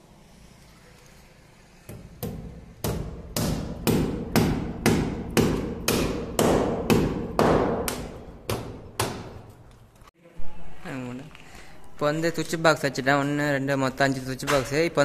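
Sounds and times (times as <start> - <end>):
hammer strikes: 1.9 - 9.6.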